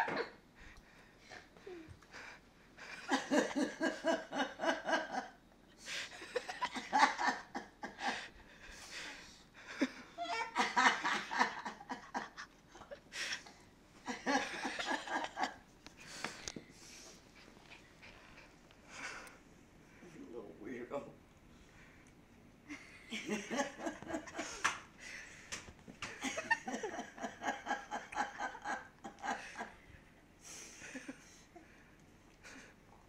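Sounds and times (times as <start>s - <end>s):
adult laughing heartily: 2.8s - 16.4s, 22.7s - 31.8s.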